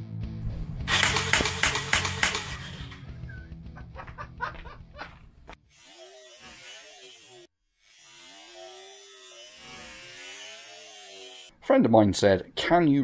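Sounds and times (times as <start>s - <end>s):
short clicks: 0.9s - 2.6s
slowed nail gun motor drone: 0.9s - 3.1s, 5.7s - 11.6s.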